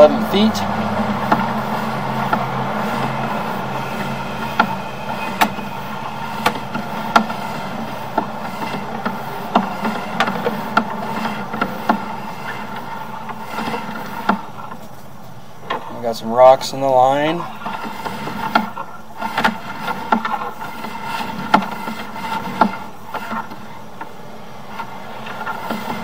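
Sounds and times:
steady hum: 0:00.0 - 0:26.0.

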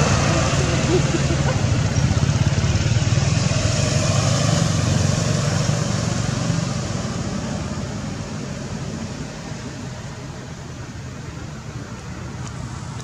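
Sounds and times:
engine running low rumble: 0:00.0 - 0:13.0.

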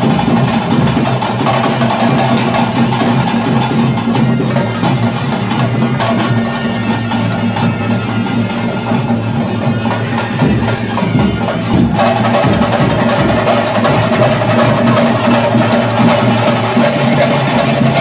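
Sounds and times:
ritual drums and percussion: 0:00.0 - 0:18.0
held wind instrument tone: 0:02.6 - 0:18.0.

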